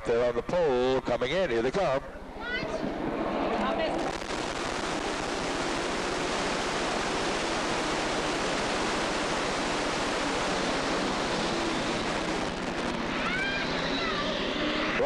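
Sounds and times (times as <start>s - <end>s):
race car engines roaring: 8.8s - 15.0s.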